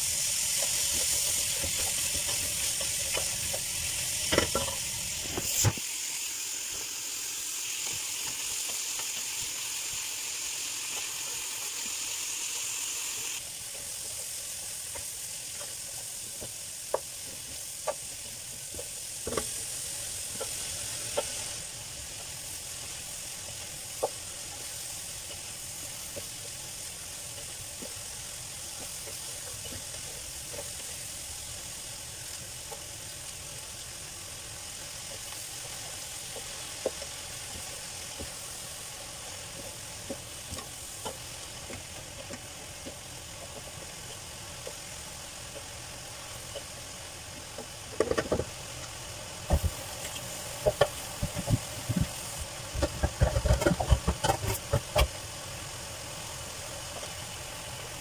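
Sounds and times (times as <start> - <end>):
vegetables sizzling in a pan: 0.0 - 58.0
wooden spatula stirring: 0.3 - 5.7, 22.2 - 31.8, 34.4 - 45.8, 49.5 - 55.1.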